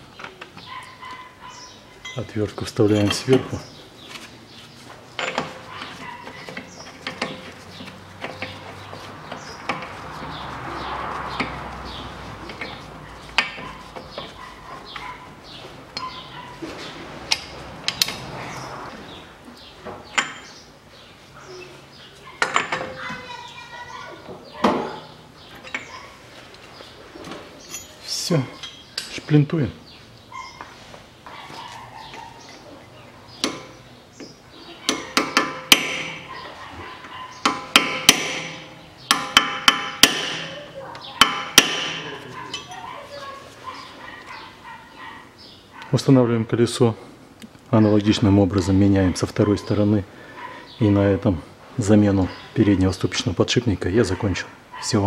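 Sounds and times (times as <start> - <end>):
metal tool clinks: 27.7 - 28.9, 42.5 - 42.9.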